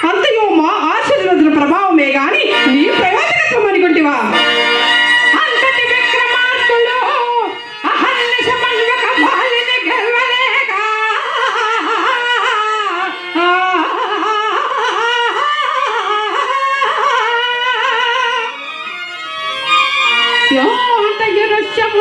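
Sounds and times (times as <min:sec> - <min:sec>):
person singing into microphone: 0:05.4 - 0:18.6.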